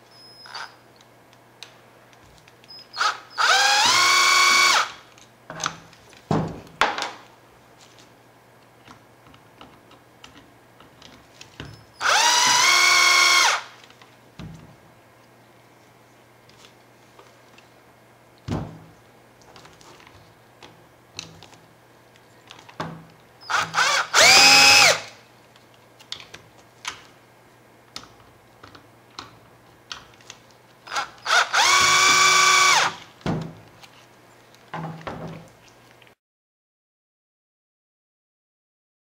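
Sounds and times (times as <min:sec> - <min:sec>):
cordless screwdriver motor whine: 0:03.0 - 0:04.9, 0:12.0 - 0:13.6, 0:23.5 - 0:25.1, 0:30.9 - 0:33.0.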